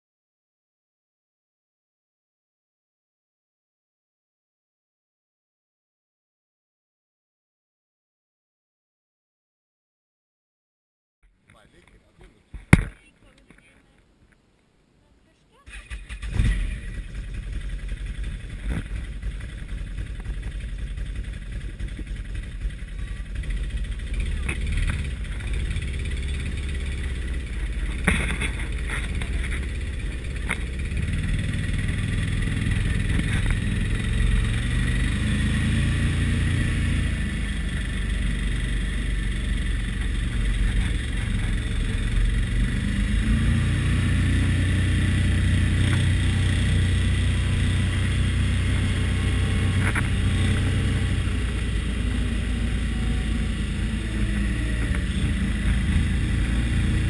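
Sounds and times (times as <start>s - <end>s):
atv engine revving: 15.7s - 57.0s.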